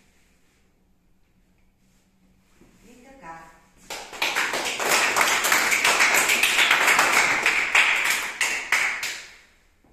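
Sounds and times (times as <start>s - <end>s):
people clapping: 3.8s - 9.6s.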